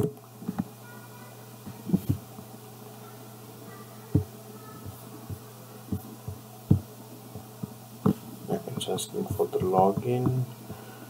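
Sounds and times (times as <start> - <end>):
steady low hum: 0.0 - 11.0
dull thumps: 1.6 - 2.5, 4.1 - 10.9.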